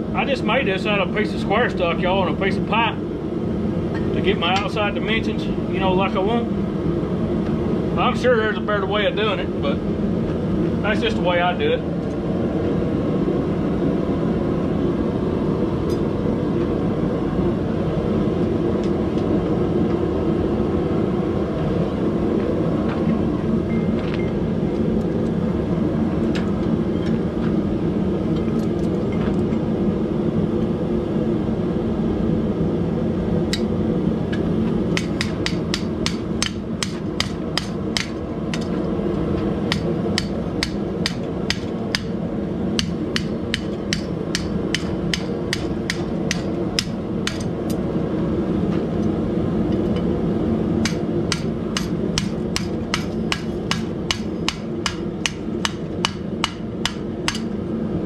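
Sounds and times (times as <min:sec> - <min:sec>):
steady low rumble: 0:00.0 - 0:58.0
hammer striking hot metal: 0:35.0 - 0:38.8, 0:39.7 - 0:42.2, 0:42.8 - 0:47.5, 0:50.8 - 0:57.6.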